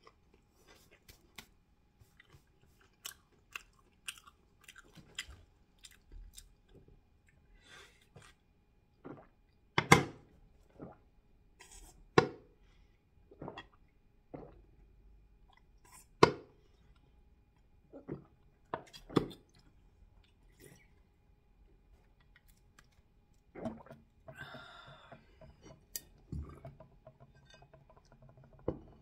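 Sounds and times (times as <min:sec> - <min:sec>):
chewing and lip smacks: 0:00.0 - 0:07.4
gulping drink: 0:09.0 - 0:09.4, 0:13.3 - 0:14.7, 0:17.9 - 0:19.5, 0:23.5 - 0:25.6.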